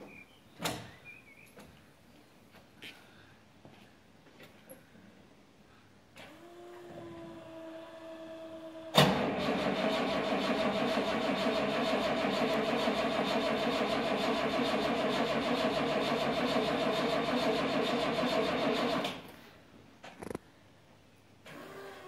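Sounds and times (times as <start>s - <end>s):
car engine starting and idling: 7.4s - 19.2s.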